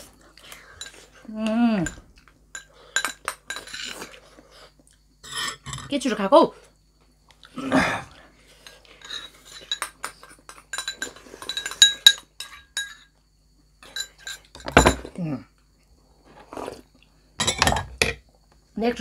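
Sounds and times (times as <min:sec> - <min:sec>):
cutlery clinking on plates: 0:01.8 - 0:04.0, 0:08.6 - 0:13.2, 0:13.8 - 0:15.1, 0:17.4 - 0:18.2.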